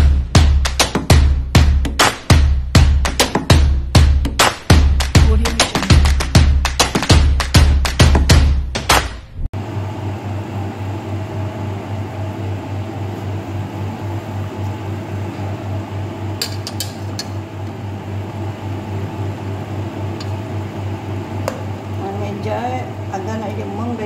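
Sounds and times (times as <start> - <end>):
low mechanical hum: 9.4 - 24.0.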